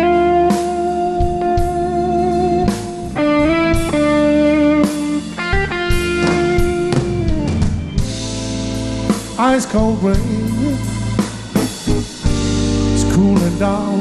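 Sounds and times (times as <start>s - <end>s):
electric guitar bending notes: 0.0s - 14.0s
live blues band: 0.0s - 14.0s
person singing: 9.4s - 11.0s, 12.9s - 14.0s.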